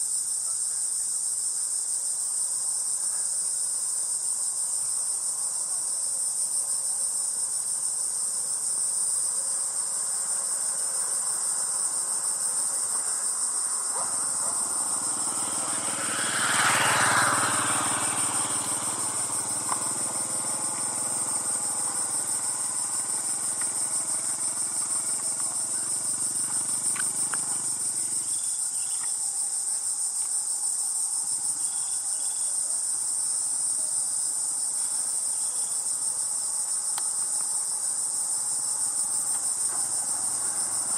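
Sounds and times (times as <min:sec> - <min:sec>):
high-pitched insect chorus: 0:00.0 - 0:40.9
vehicle engine passing by: 0:13.2 - 0:28.7, 0:38.2 - 0:40.9.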